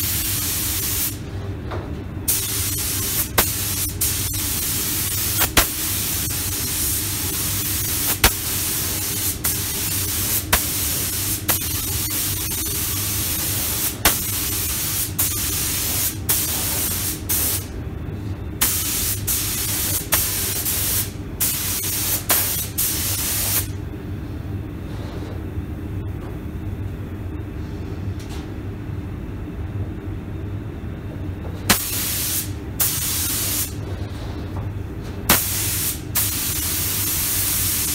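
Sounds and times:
steady low hum: 0:00.0 - 0:37.9
spray gun hissing: 0:02.3 - 0:17.6, 0:31.7 - 0:33.8, 0:35.3 - 0:37.9.

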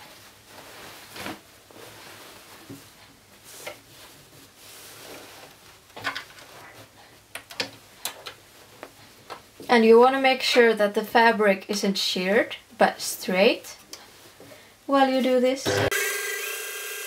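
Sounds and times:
fabric rustling: 0:00.0 - 0:10.8
sharp clicks and knocks: 0:07.3 - 0:08.4.

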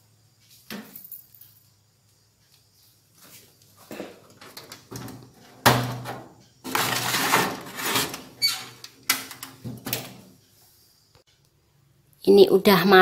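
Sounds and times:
baking trays scraping and clattering: 0:03.9 - 0:10.1.

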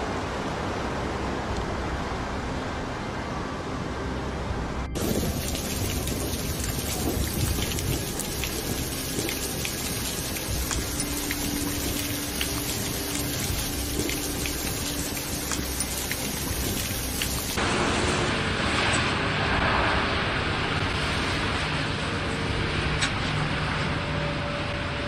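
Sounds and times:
hail and rain pattering on paving: 0:05.0 - 0:17.6
hailstones ticking: 0:05.0 - 0:17.6
heavy precipitation rushing: 0:05.0 - 0:18.0.

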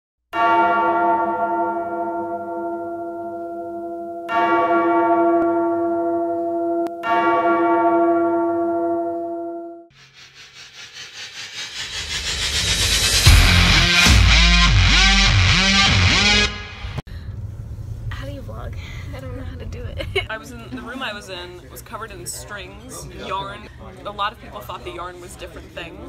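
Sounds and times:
deep bell tolling: 0:00.4 - 0:09.9, 0:13.1 - 0:17.0
pulsing noise: 0:09.9 - 0:17.0.

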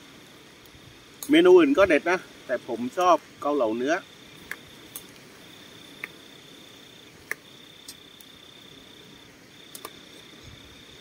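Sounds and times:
cricket trilling: 0:00.0 - 0:11.0.

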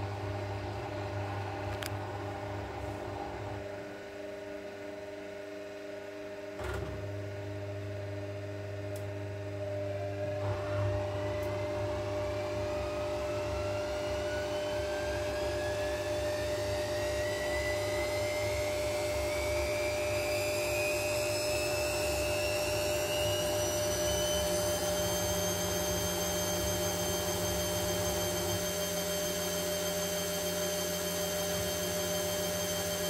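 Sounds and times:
washing machine spinning: 0:00.0 - 0:33.0
rising motor whine: 0:09.8 - 0:33.0.

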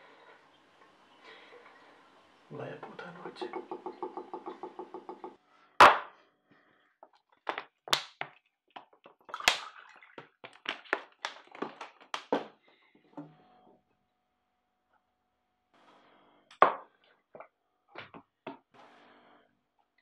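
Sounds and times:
plastic bottle crackling: 0:07.4 - 0:12.6
water pouring into a glass: 0:09.3 - 0:10.3.

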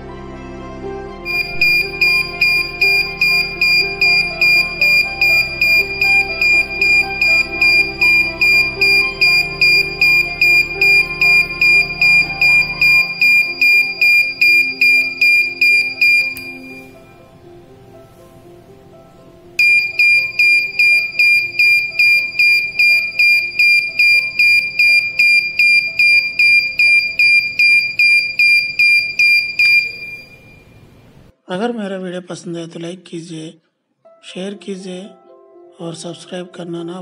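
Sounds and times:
buzzer beeping: 0:01.3 - 0:17.0, 0:19.6 - 0:31.0.

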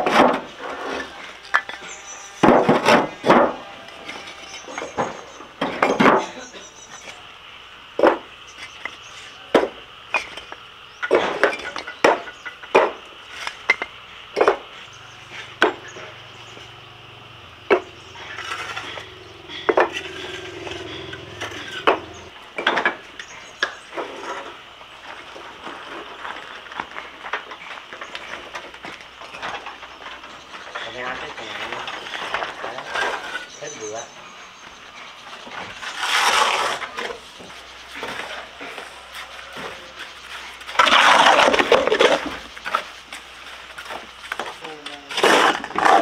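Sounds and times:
high-pitched hum: 0:00.8 - 0:05.8, 0:14.7 - 0:22.4.

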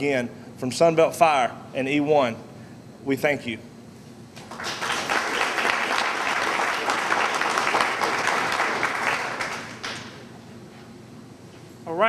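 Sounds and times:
audience applauding: 0:04.4 - 0:10.2.

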